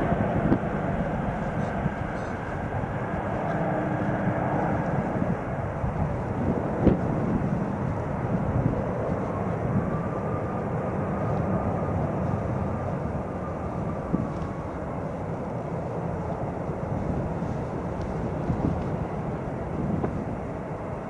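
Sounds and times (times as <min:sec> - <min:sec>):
faint whine: 0:00.0 - 0:21.0
jet engines rumbling at takeoff: 0:00.0 - 0:21.0.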